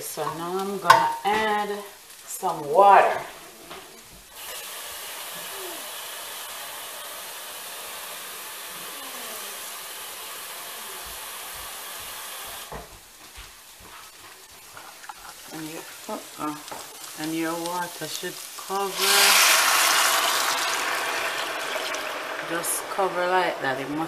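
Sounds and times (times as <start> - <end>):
water pouring: 15.0 - 24.0.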